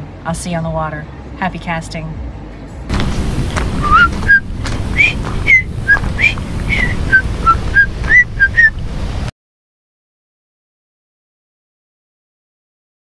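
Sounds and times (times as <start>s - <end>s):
steady low rumble: 0.0s - 9.3s
person whistling a tune: 3.8s - 8.7s.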